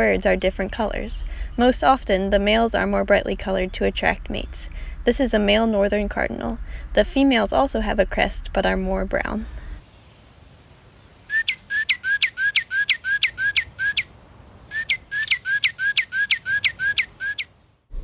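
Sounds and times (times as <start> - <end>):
bird song of repeated whistles: 11.3 - 14.1, 14.7 - 17.5.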